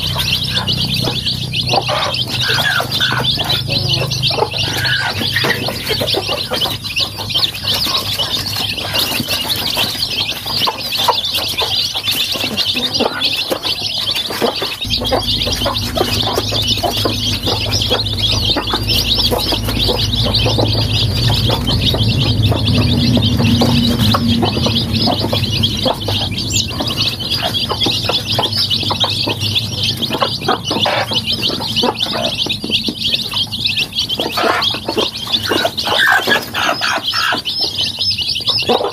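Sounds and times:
chicks peeping: 0:00.0 - 0:38.9
low rumble: 0:14.8 - 0:34.1.

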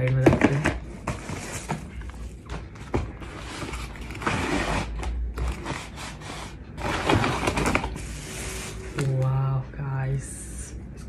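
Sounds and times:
cardboard scraping and rustling: 0:00.4 - 0:09.0.

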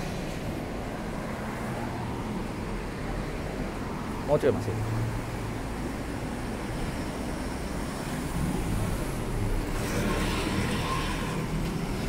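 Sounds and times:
hum of passing traffic: 0:00.0 - 0:12.0
vehicle passing close: 0:07.8 - 0:12.0.

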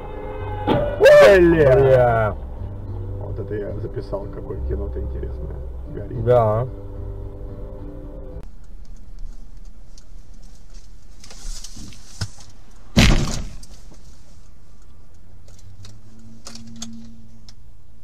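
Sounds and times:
loud vehicle crash: 0:00.0 - 0:02.4, 0:12.9 - 0:13.7
car engine and road noise: 0:00.0 - 0:18.0.

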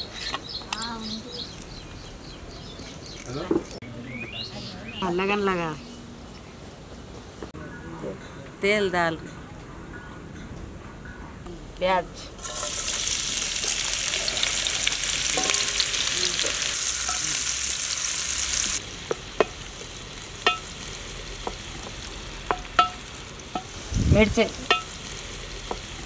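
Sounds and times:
onions sizzling in hot oil: 0:12.4 - 0:26.0.

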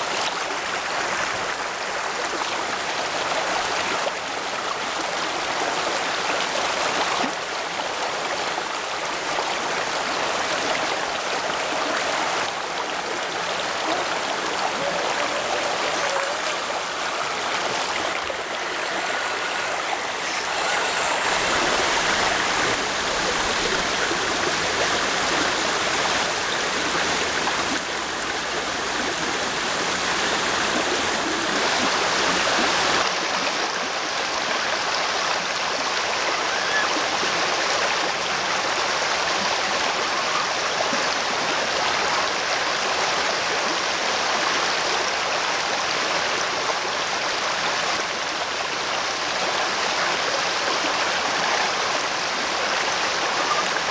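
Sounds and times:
creek rapids rushing: 0:00.0 - 0:53.9.

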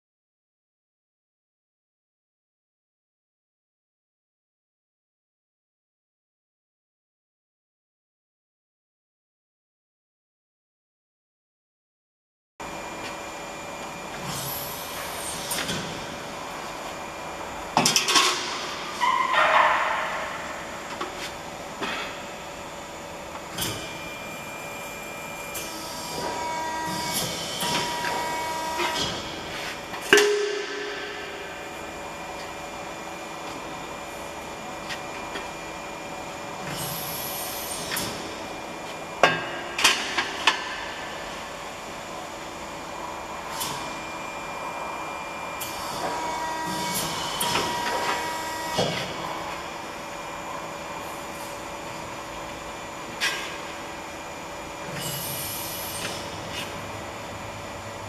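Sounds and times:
sharp metallic clanks: 0:30.1 - 0:31.4.

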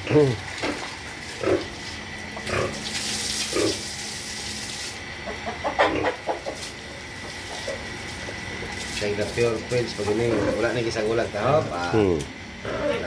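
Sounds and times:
pigs grunting: 0:00.0 - 0:02.9, 0:03.5 - 0:03.9, 0:05.3 - 0:06.6, 0:10.0 - 0:13.0
hose water splashing on concrete: 0:00.2 - 0:05.0, 0:06.3 - 0:11.0.

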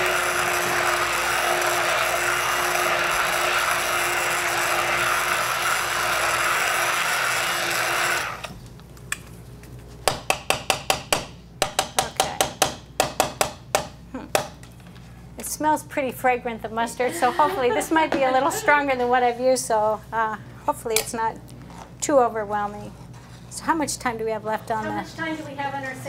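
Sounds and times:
immersion blender running: 0:00.0 - 0:08.6.

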